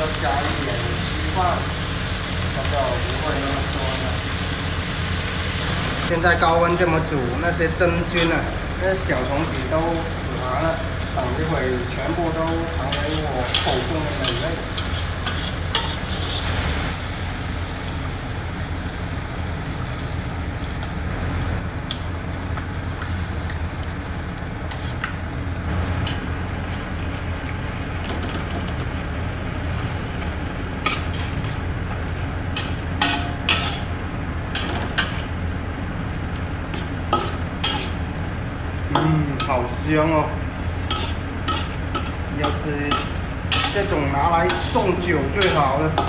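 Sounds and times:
food sizzling and bubbling in wok: 0.0 - 46.0
steady low hum: 0.0 - 46.0
metal spatula scraping wok: 12.4 - 16.9, 30.8 - 31.7, 32.5 - 35.3, 36.7 - 38.0, 40.6 - 46.0.

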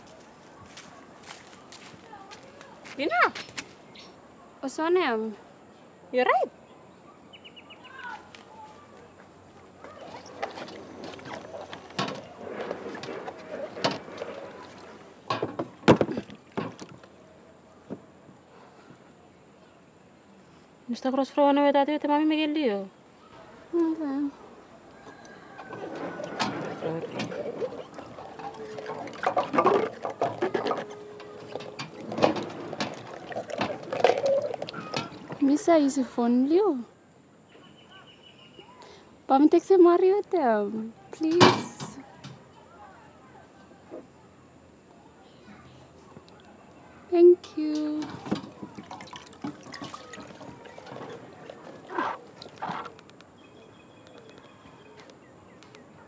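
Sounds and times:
water sloshing in metal basins: 9.6 - 17.5, 23.4 - 36.0, 41.2 - 42.4, 47.1 - 53.1.

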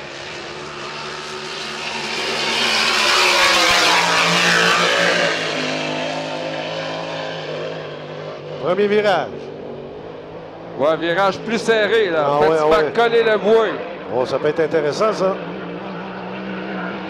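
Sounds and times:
racing boat engine at full throttle: 0.0 - 17.0.

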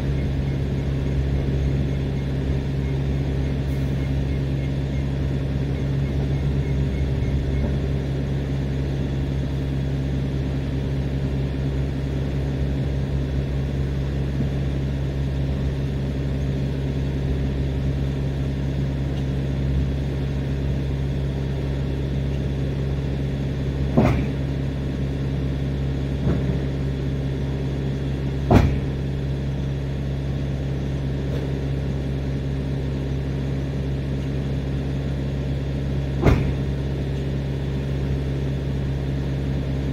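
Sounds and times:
diesel engine idling hum: 0.0 - 39.9
sharp knocks: 23.9 - 24.4, 28.5 - 28.9, 36.2 - 36.6.

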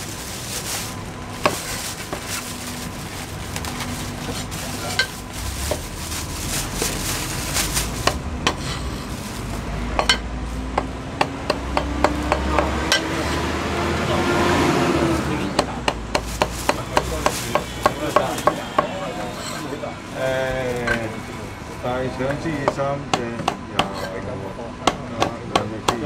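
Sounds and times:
cleaver knocking on chopping block: 10.8 - 13.1, 22.3 - 24.0, 24.8 - 26.0.

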